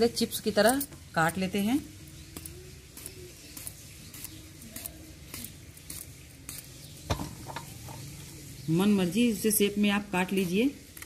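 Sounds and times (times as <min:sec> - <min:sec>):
knife slicing eggplant: 0:02.2 - 0:08.1.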